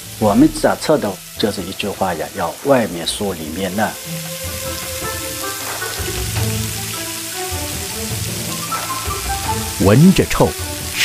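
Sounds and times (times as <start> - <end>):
background music: 0.0 - 11.0
deep-frying sizzle in oil: 0.0 - 11.0.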